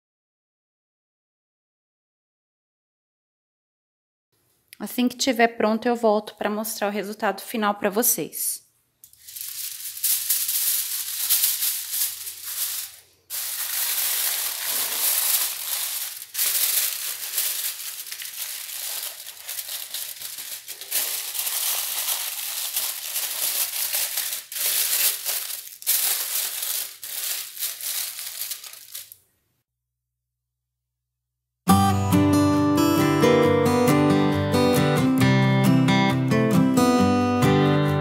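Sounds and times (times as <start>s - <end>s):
aluminium foil crinkling: 9.0s - 29.2s.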